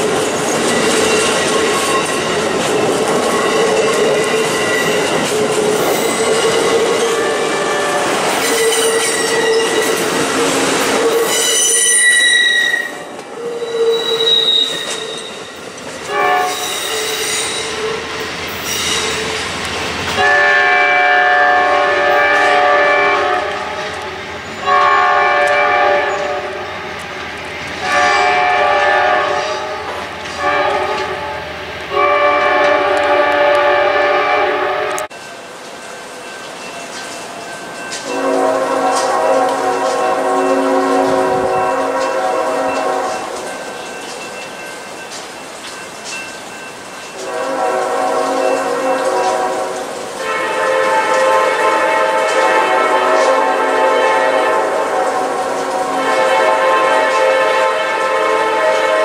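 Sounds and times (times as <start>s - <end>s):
train cars rolling past: 0.0s - 59.0s
train horn blasts: 5.8s - 15.5s, 16.1s - 18.1s, 20.1s - 26.7s, 27.8s - 35.1s, 38.0s - 43.5s, 47.2s - 59.0s
wheel flange squeal: 11.2s - 15.6s, 16.5s - 18.0s, 18.6s - 19.3s.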